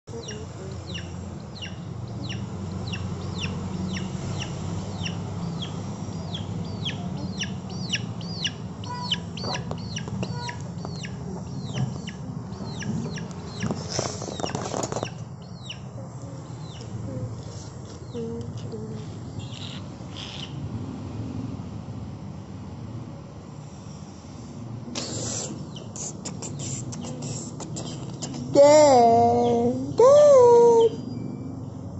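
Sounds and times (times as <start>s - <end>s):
chicks peeping: 0.1s - 20.6s, 25.0s - 28.6s.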